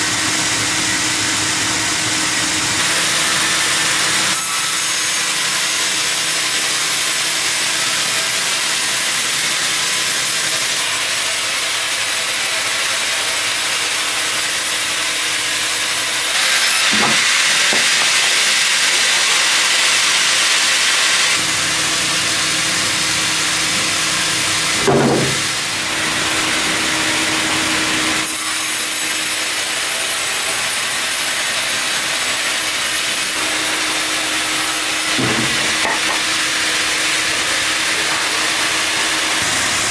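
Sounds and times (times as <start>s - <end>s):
band saw cutting log: 0.0s - 39.9s
thump: 24.8s - 25.4s, 35.2s - 35.6s.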